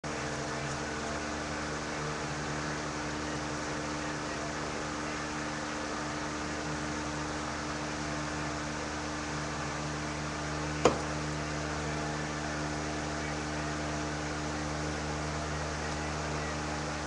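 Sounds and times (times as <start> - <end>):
electrical hum and hiss: 0.0 - 17.0.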